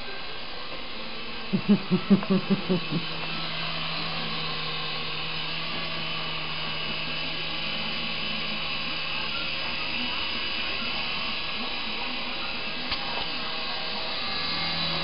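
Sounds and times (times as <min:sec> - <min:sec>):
toy helicopter rotors whirring: 0:00.0 - 0:15.0.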